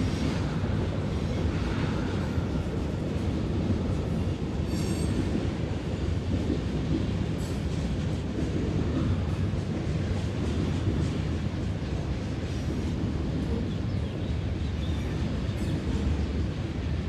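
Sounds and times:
train rolling rumble: 0:00.0 - 0:17.0
train wheel squeal: 0:04.0 - 0:05.6, 0:12.5 - 0:16.3.

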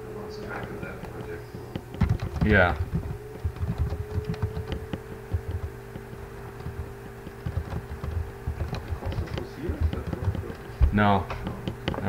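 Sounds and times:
steady electrical hum: 0:00.0 - 0:12.0
keyboard typing clicks: 0:01.0 - 0:12.0.

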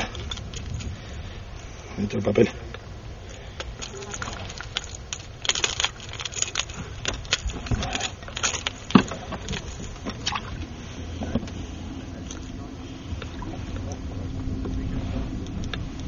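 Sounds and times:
pliers and hooks clicking and rattling: 0:03.6 - 0:10.0.

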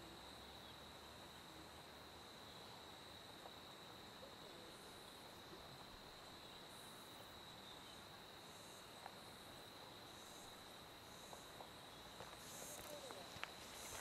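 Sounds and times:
high-pitched insect trill: 0:06.1 - 0:14.0.

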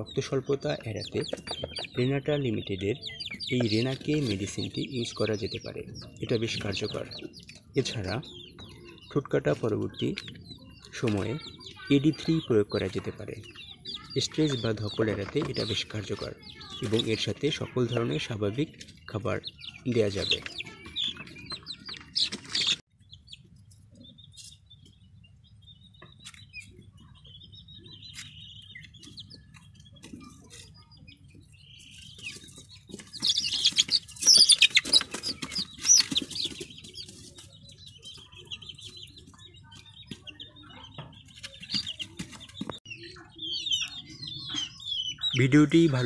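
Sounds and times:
chicks peeping and chirping: 0:00.0 - 0:46.0.

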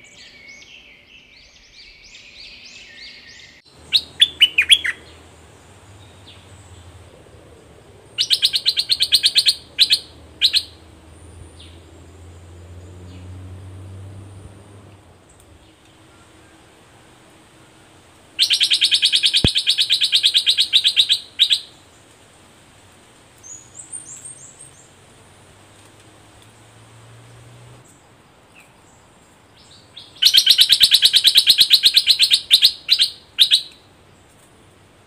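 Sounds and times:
bird rattling trills: 0:03.8 - 0:07.4, 0:08.0 - 0:11.9, 0:18.4 - 0:21.8.

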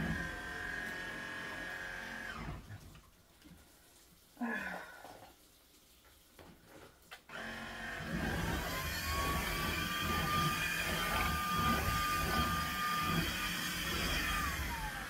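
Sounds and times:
stick vacuum motor whine: 0:07.3 - 0:15.0.

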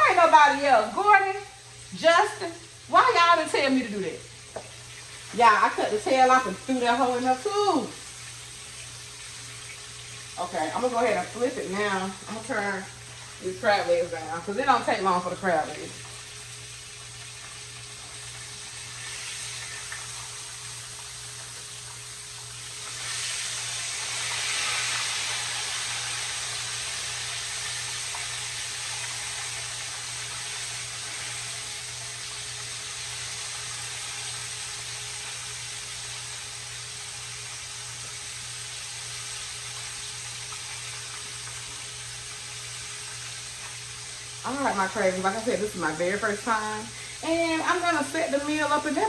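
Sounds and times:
fish frying in oil: 0:00.0 - 0:49.0.

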